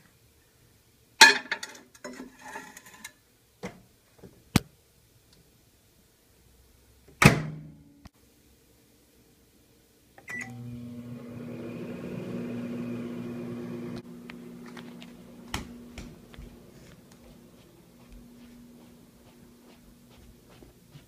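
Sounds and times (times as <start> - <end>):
microwave humming: 10.3 - 19.6.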